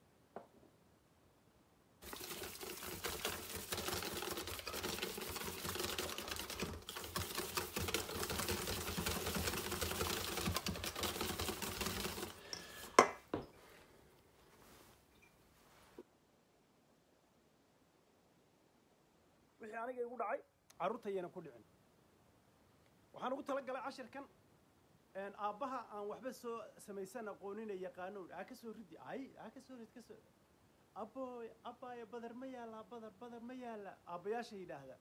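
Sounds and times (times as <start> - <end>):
batter sloshing: 2.0 - 13.0
whisk clattering in metal bowl: 2.0 - 13.0.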